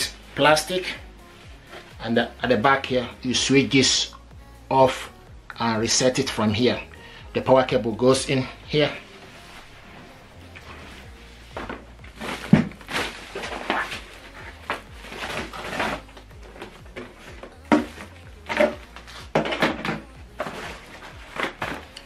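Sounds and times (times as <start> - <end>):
cardboard and plastic rustling: 9.4 - 22.0
boxes knocking when set down: 11.6 - 13.9, 14.7 - 21.8.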